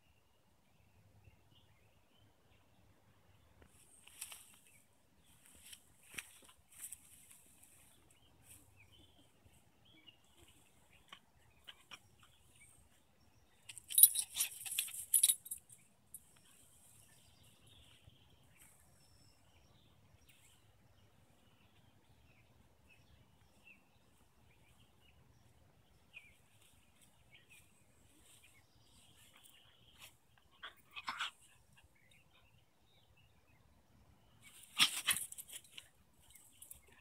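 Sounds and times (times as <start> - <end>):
metallic jingling: 13.7 - 16.2.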